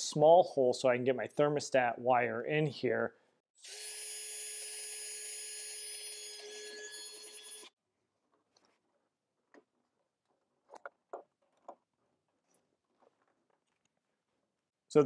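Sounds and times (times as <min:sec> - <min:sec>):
power drill whining: 0:03.6 - 0:07.7.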